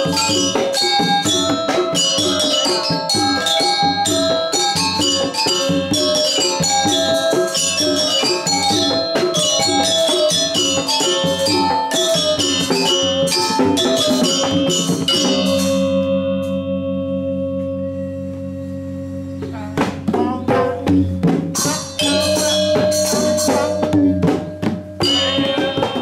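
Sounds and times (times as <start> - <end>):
hand drums: 0.0 - 26.0
metallophones playing fast: 0.0 - 26.0
low gong tone: 14.5 - 21.1.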